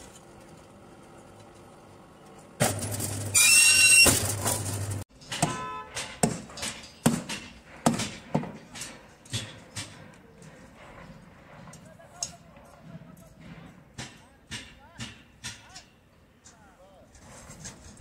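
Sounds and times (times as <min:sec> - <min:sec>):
steel bar squealing while bent: 0:03.3 - 0:04.4.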